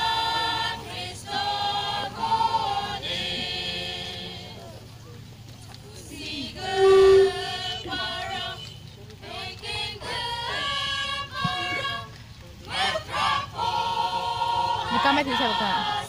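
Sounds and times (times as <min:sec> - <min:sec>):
choir singing over loudspeaker: 0:00.0 - 0:04.9, 0:05.9 - 0:16.0
loud steady tone: 0:06.6 - 0:08.8.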